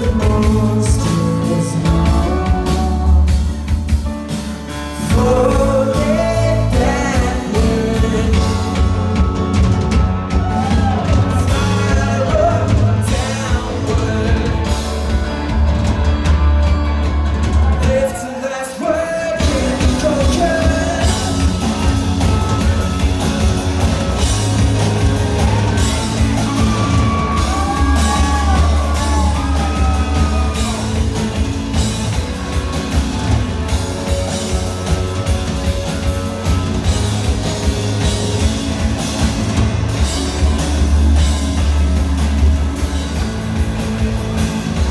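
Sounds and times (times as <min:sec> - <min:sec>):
person singing: 0:00.0 - 0:04.0, 0:04.7 - 0:09.6, 0:10.2 - 0:15.5, 0:17.6 - 0:23.2, 0:25.1 - 0:31.8
rock band playing: 0:00.0 - 0:44.9.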